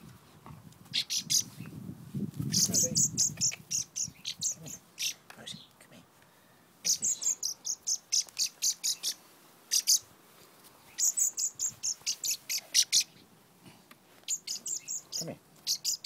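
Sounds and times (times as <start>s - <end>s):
young bird cheeping: 0.9s - 1.6s, 2.4s - 5.7s, 6.8s - 10.1s, 10.9s - 13.2s, 14.3s - 16.0s.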